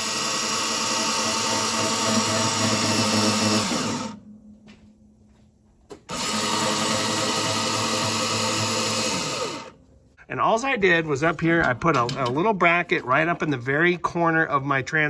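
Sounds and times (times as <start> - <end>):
electric actuator motor whine: 0.0 - 4.3, 6.0 - 9.8.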